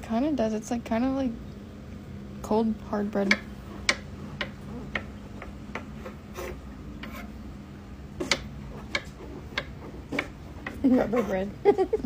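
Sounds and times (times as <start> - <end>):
knife sawing through mushroom: 6.2 - 7.4.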